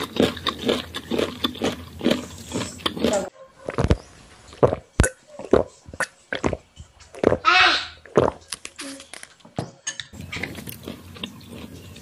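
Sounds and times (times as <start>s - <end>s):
person gulping: 4.6s - 7.4s, 8.0s - 8.5s.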